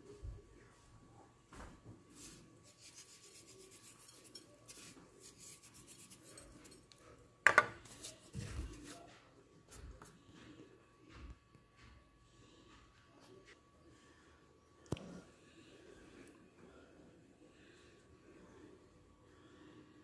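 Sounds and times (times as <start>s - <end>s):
hands rubbing and rustling: 2.1s - 6.8s.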